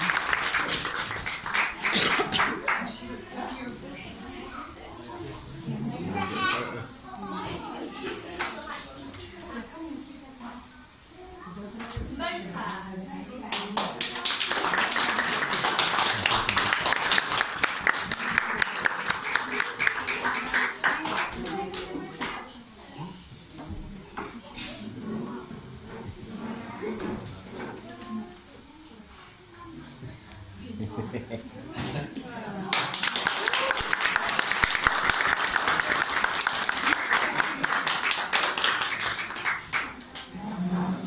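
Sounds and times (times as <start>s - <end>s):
audience clapping: 0.0s - 3.0s, 13.5s - 21.9s, 32.7s - 40.3s.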